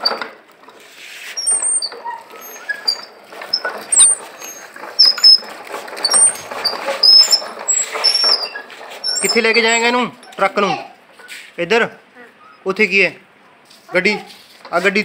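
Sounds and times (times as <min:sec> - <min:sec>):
toy wheels rattling over paving: 0:00.0 - 0:10.6
high-pitched squeaks: 0:01.0 - 0:11.5.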